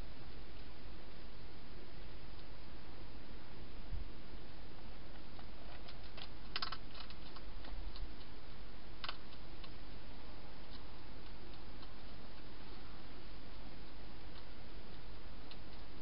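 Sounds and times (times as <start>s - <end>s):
steady hiss: 0.0s - 16.0s
hedgehog clicks and scratches: 4.8s - 10.0s, 10.6s - 16.0s.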